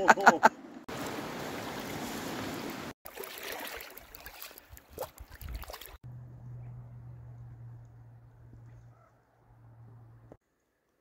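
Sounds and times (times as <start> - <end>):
river water rushing: 0.9 - 4.0
uneven water sounds: 0.9 - 9.1.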